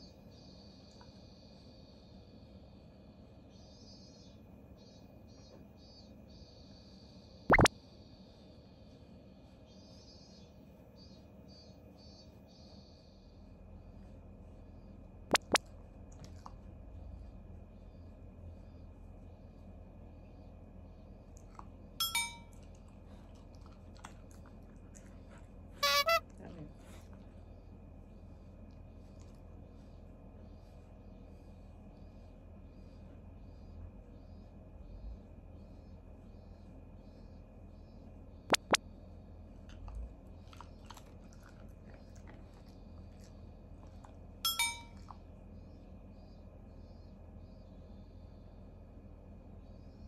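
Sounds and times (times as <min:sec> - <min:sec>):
dog crunching a treat: 0:22.5 - 0:27.2, 0:39.6 - 0:44.2
high-pitched squeak: 0:25.8 - 0:26.2.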